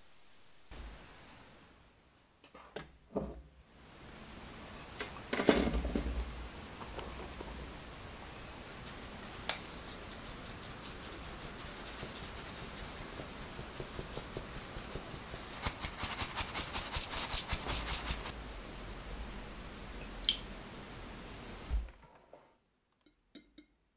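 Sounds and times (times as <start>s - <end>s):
powder scratching through mesh sieve: 8.6s - 18.3s.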